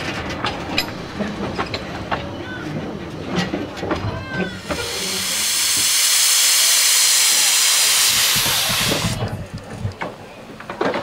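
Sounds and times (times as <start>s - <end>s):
steam hissing: 4.6s - 9.3s.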